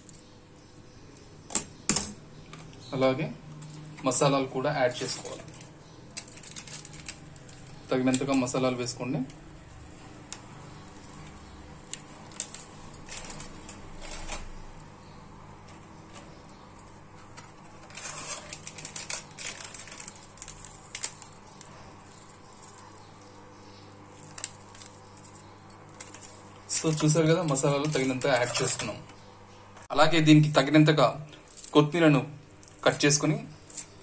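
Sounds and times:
plastic packet crinkling: 0:05.0 - 0:08.7, 0:17.4 - 0:23.4, 0:24.1 - 0:29.0.

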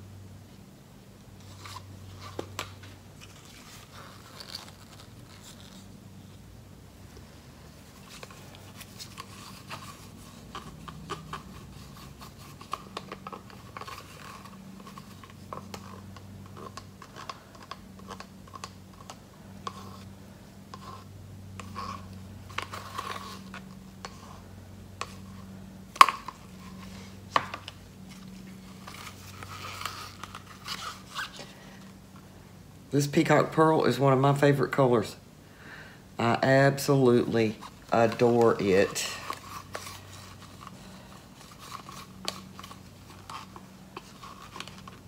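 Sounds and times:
paint scraping in plastic cup: 0:01.4 - 0:06.0, 0:07.8 - 0:31.9, 0:36.8 - 0:45.0.

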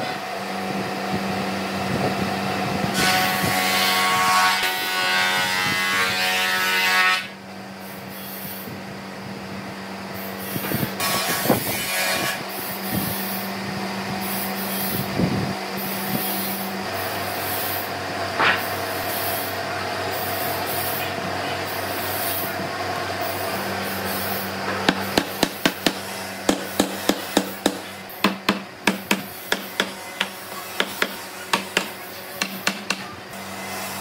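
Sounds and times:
mechanical hum: 0:00.0 - 0:34.0.

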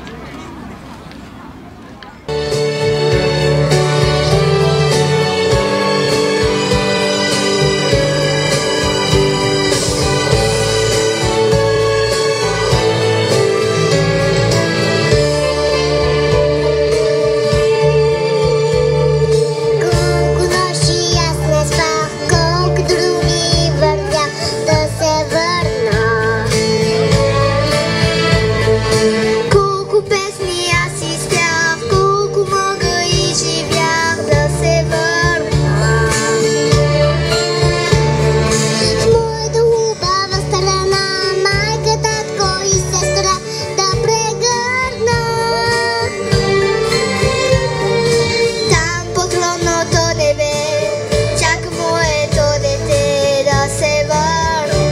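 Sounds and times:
instrumental backing music: 0:02.3 - 0:54.9
girl singing into a microphone: 0:14.7 - 0:46.6, 0:48.1 - 0:54.9.

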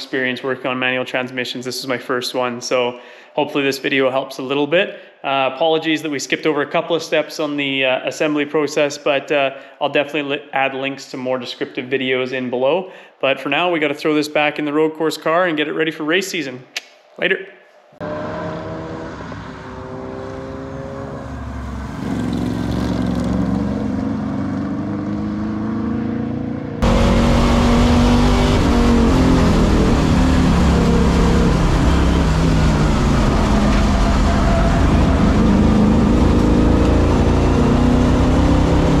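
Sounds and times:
race car engine accelerating: 0:18.0 - 0:39.0.

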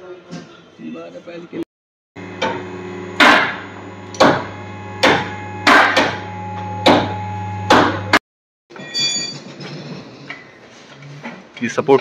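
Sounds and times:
low machine hum: 0:02.2 - 0:08.2
hammer striking metal: 0:03.2 - 0:06.2, 0:06.8 - 0:08.2.

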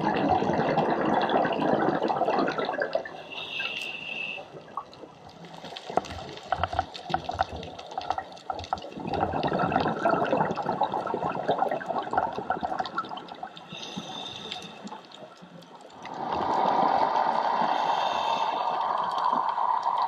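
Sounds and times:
bubbles gurgling underwater: 0:00.0 - 0:03.2, 0:04.6 - 0:13.8, 0:14.9 - 0:20.0
diver breathing through regulator: 0:03.2 - 0:04.6, 0:13.6 - 0:15.0, 0:16.2 - 0:19.2.

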